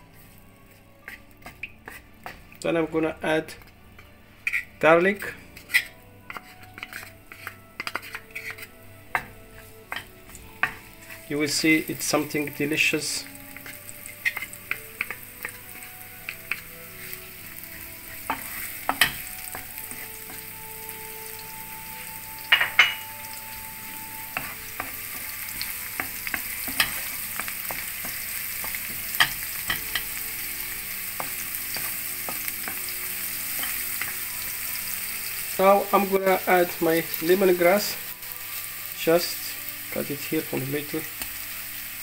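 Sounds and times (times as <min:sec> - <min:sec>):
onion and garlic sizzling in oil: 0:00.0 - 0:42.0
utensil scraping a pan: 0:00.2 - 0:02.4, 0:04.0 - 0:20.6.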